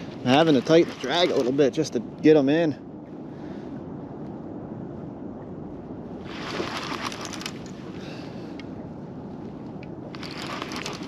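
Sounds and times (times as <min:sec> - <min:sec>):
fast river water: 0:00.0 - 0:03.8, 0:06.0 - 0:09.2, 0:10.0 - 0:11.0.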